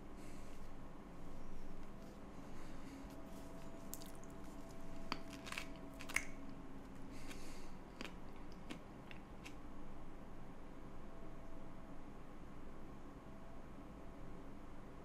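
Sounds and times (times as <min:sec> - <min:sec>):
faint steady hum: 0:00.0 - 0:15.0
banana peel crackling: 0:03.1 - 0:09.6
biting and chewing: 0:05.2 - 0:09.6.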